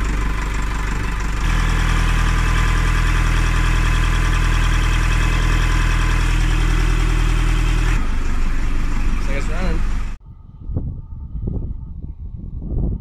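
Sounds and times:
diesel engine running: 0.0 - 10.2.

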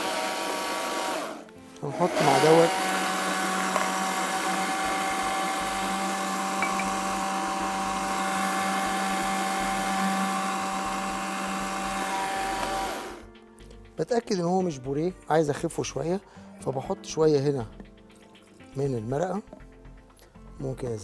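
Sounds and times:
electric chopper motor running: 0.0 - 13.2.

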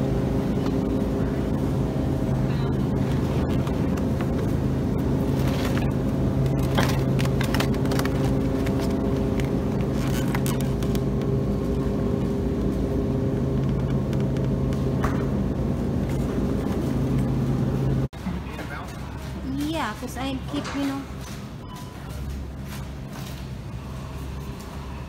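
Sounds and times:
refrigerated case humming: 0.0 - 25.0.

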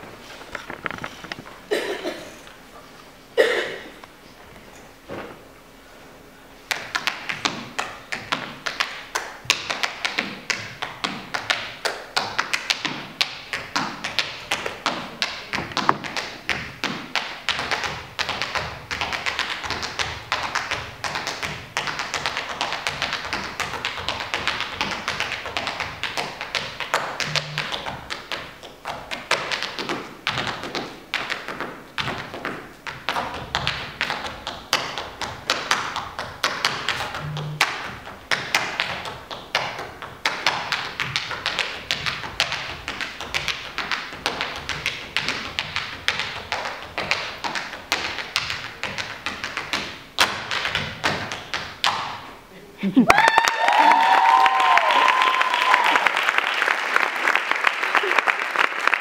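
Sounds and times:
tap shoes striking stage floor: 0.5 - 1.6, 6.7 - 52.2.

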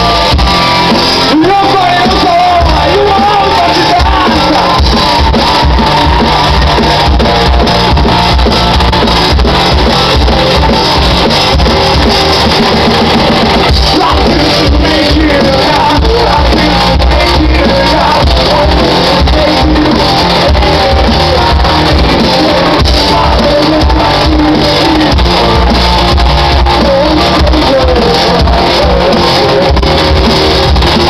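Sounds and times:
rock band playing loudly: 0.0 - 31.0
man singing: 1.3 - 6.4, 13.7 - 31.0.

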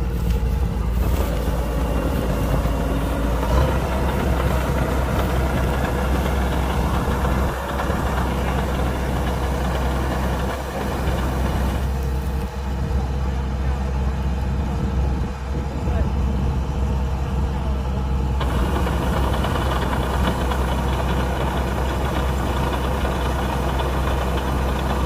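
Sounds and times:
broad mechanical rush: 0.0 - 12.4, 18.4 - 25.0
diesel engine drone: 0.0 - 25.0.

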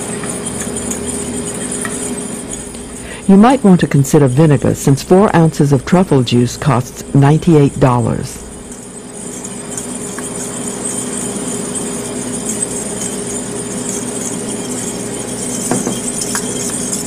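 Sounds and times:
fork clinking against metal: 0.0 - 5.2, 8.4 - 17.0
fork whisking in metal bowl: 0.0 - 17.0
low hum: 0.1 - 9.2.

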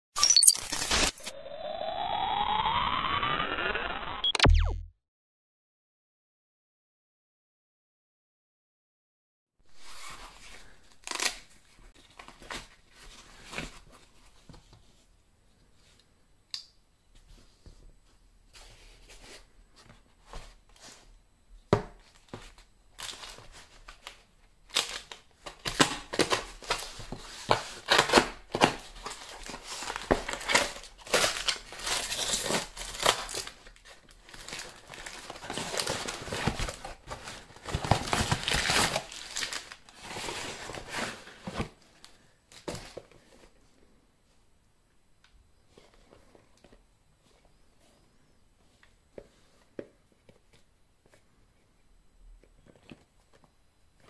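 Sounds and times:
cardboard tearing: 11.0 - 11.4, 34.3 - 41.2
packing paper crumpling: 29.0 - 41.2.

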